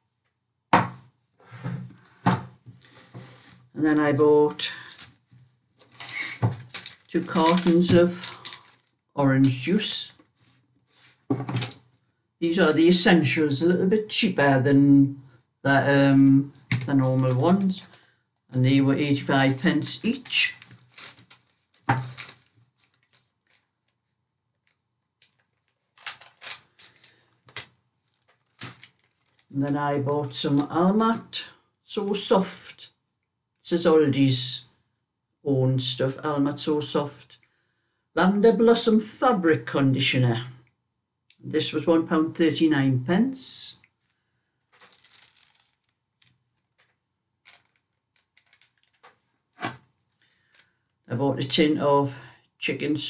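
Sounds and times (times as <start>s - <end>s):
groceries rustling and knocking: 0.8s - 3.7s, 4.7s - 11.9s, 19.2s - 23.7s, 24.6s - 29.5s, 44.7s - 50.7s.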